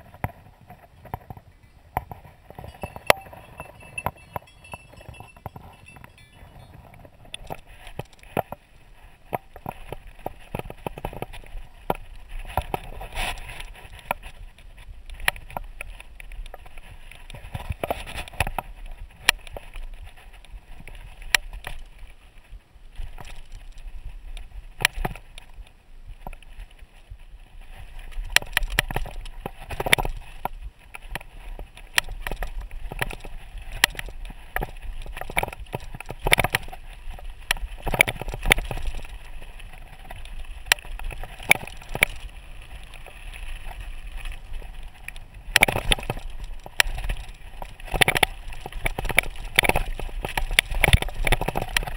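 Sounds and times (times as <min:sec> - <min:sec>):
tyres crunching over stones: 0:00.0 - 0:22.2, 0:27.5 - 0:51.9
bike clattering over rocks: 0:01.0 - 0:08.6, 0:28.1 - 0:44.8, 0:45.4 - 0:51.9.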